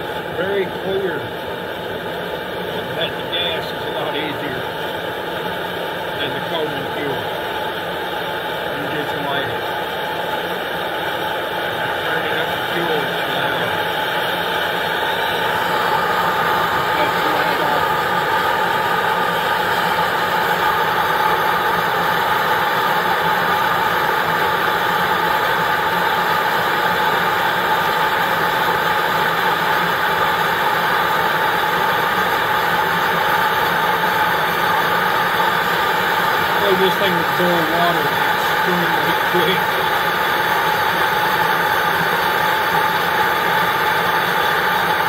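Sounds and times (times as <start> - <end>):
camping stove hissing: 0.4 - 45.0.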